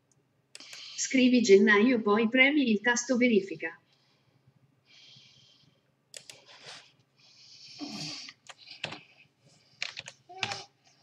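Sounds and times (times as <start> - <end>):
computer keyboard keys clicking: 9.8 - 10.6.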